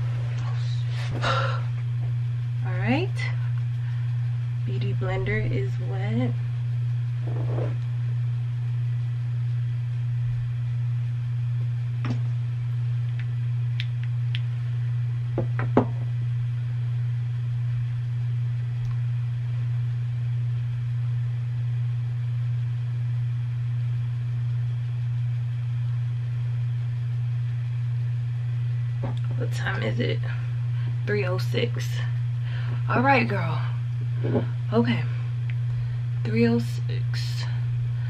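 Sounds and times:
low electrical hum: 0.0s - 38.0s.

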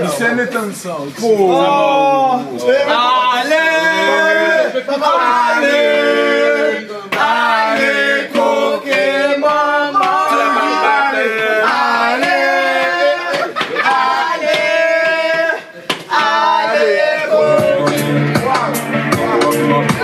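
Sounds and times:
voices singing together: 1.4s - 20.0s
sharp claps: 10.0s - 10.4s, 11.6s - 12.4s, 13.3s - 15.3s.

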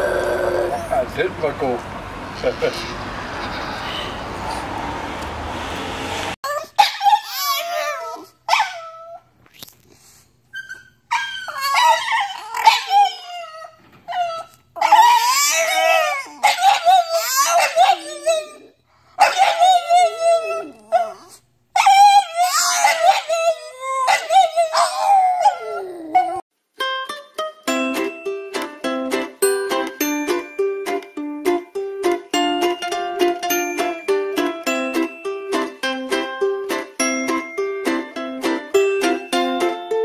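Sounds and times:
dogs howling: 0.0s - 1.1s, 11.1s - 26.4s.

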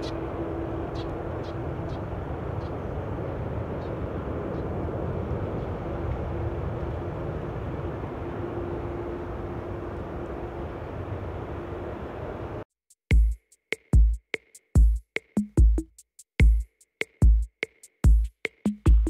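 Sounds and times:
faint held hum: 0.0s - 12.6s
jet engines roaring: 0.0s - 12.6s.

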